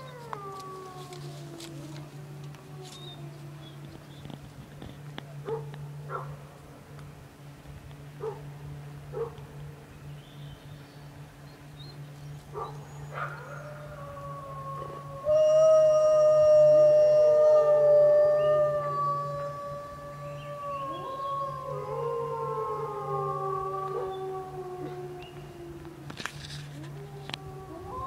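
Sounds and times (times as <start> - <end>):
wolves howling in chorus: 0.0 - 4.1, 12.5 - 28.0
wolves yipping: 12.5 - 13.6.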